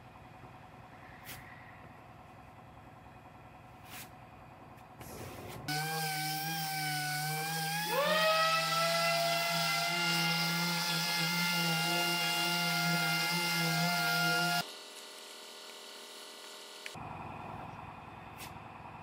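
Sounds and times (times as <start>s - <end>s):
orbital sander whining: 5.7s - 17.0s.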